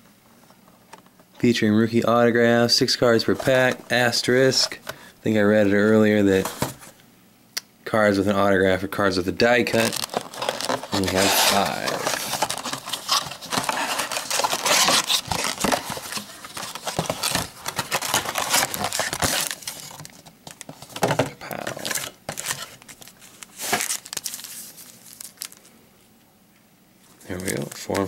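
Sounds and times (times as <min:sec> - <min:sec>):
cardboard box rustling and scraping: 0:06.4 - 0:06.9, 0:09.7 - 0:20.1, 0:20.7 - 0:25.2
foil packs crinkling: 0:09.6 - 0:25.7, 0:27.2 - 0:28.0.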